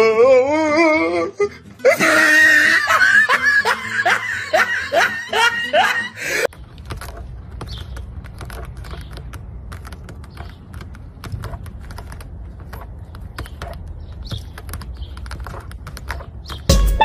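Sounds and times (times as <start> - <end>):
cat clawing and gnawing at tyre: 6.5 - 16.9.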